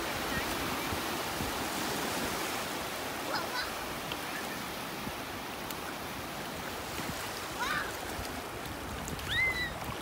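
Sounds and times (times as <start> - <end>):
surf washing over sand: 0.0 - 10.0
child calling: 7.6 - 8.0.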